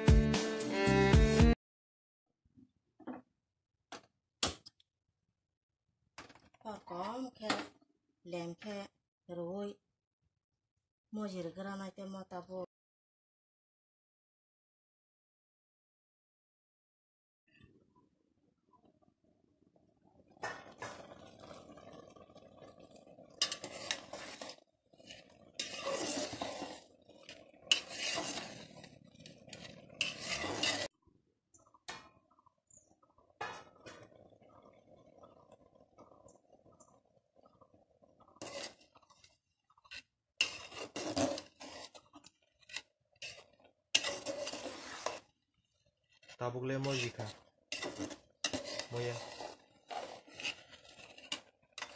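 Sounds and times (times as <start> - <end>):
metal ladle scraping a pot: 23.2 - 30.9, 38.2 - 51.9.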